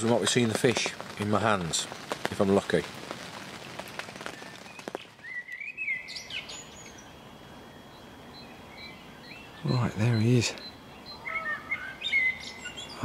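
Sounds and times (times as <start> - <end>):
rain on floodwater: 0.0 - 5.3
small bird chirping: 3.5 - 13.0.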